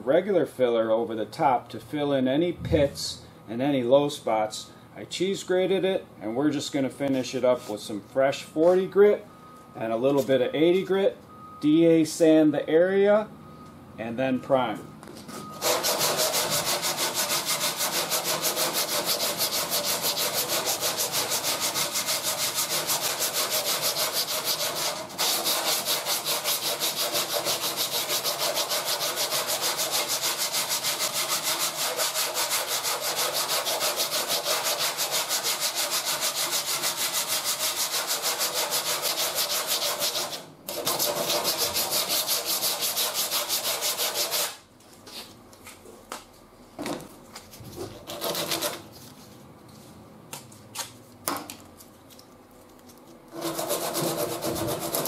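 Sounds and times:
sandpaper scraping over filler: 0:15.6 - 0:45.3, 0:47.6 - 0:49.3, 0:53.4 - 0:55.0.

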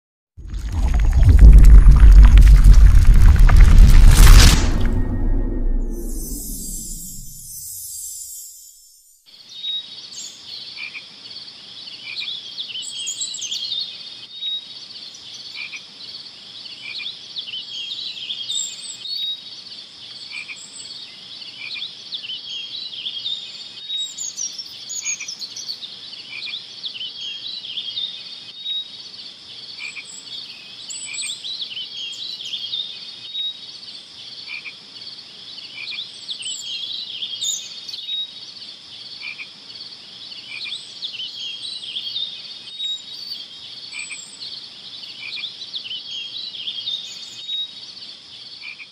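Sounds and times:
high-pitched trill: 0:04.2 - 0:08.8
frogs calling: 0:34.4 - 0:34.9, 0:35.6 - 0:36.9, 0:39.1 - 0:41.5, 0:43.8 - 0:46.2.

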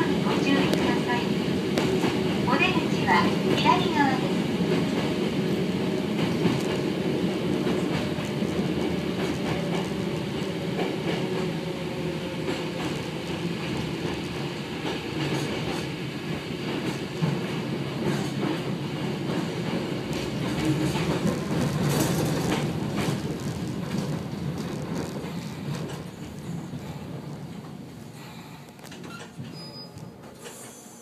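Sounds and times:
train wheels rumbling on rail: 0:00.0 - 0:31.0
wheels clicking over rail joints: 0:16.7 - 0:27.8.

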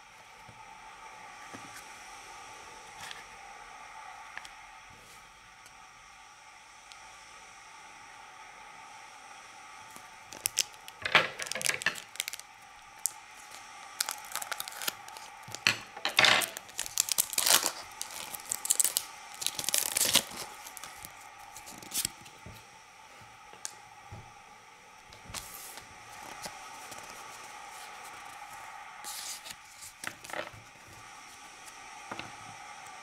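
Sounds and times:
foil wrapper crinkling and tearing: 0:10.3 - 0:15.7, 0:16.4 - 0:22.2.

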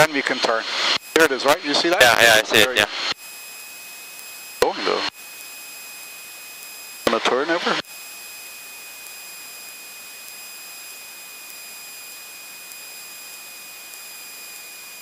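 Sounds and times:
aircraft engine: 0:00.0 - 0:01.9, 0:02.8 - 0:15.0
headset intercom hiss: 0:00.0 - 0:03.2
constant high-pitched whine: 0:00.0 - 0:15.0.

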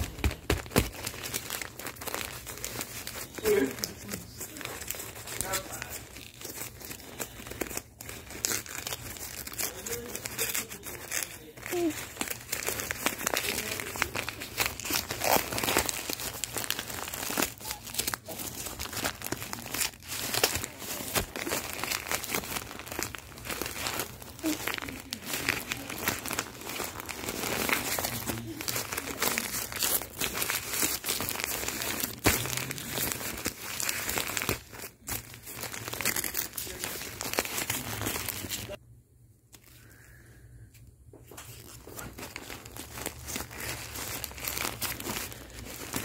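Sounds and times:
paper and plastic crinkling: 0:00.0 - 0:38.8, 0:41.1 - 0:46.0.

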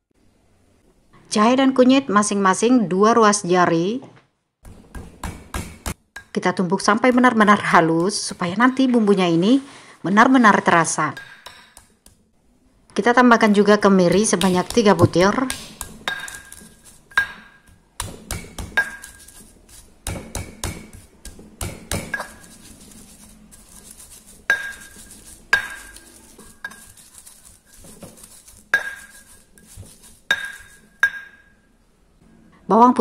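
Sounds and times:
pestle grinding scrapes: 0:04.6 - 0:06.3, 0:07.1 - 0:09.2, 0:13.4 - 0:31.1
pestle knocking in stone mortar: 0:04.6 - 0:06.4, 0:14.0 - 0:22.8, 0:23.7 - 0:31.4.

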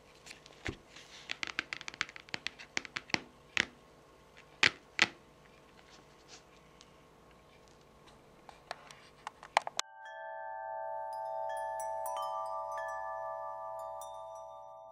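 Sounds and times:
gentle chiming music: 0:09.8 - 0:14.9.

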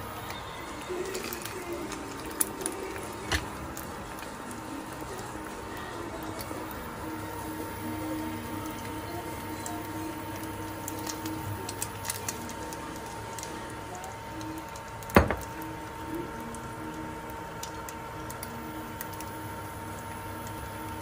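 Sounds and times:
induction cooker whine and hum: 0:00.0 - 0:21.0
onion dropping into frying egg: 0:03.2 - 0:03.6, 0:15.0 - 0:15.6.

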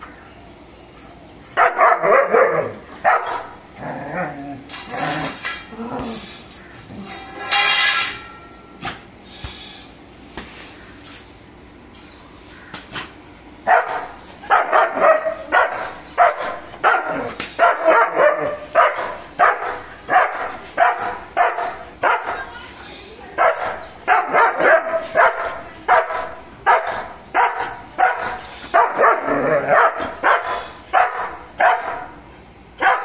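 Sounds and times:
dog barking rapidly: 0:01.6 - 0:03.5, 0:13.7 - 0:22.4, 0:23.4 - 0:32.1, 0:32.8 - 0:33.0
metal plate clattering: 0:07.0 - 0:08.6.

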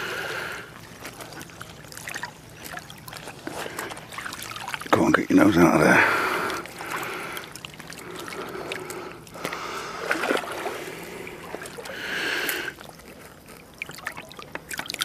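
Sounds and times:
shallow water sloshing and splashing: 0:00.0 - 0:15.0.

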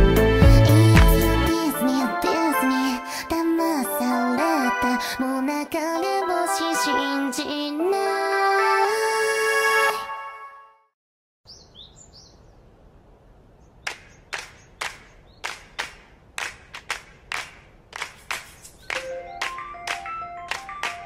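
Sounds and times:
soft music melody: 0:00.0 - 0:10.6, 0:18.8 - 0:21.0.

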